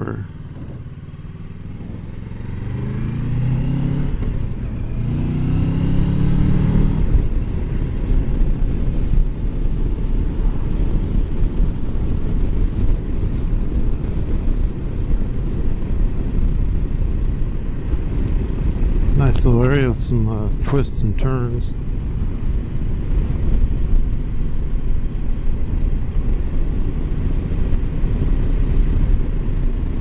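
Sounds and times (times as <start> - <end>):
wind noise on microphone: 0.0 - 30.0
motorcycle engine accelerating: 0.3 - 19.8.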